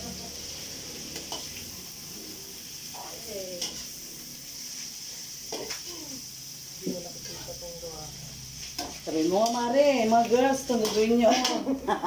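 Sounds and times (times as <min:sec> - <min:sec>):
meat sizzling in a wok: 0:00.0 - 0:12.0
spatula scraping a pan: 0:08.5 - 0:12.0.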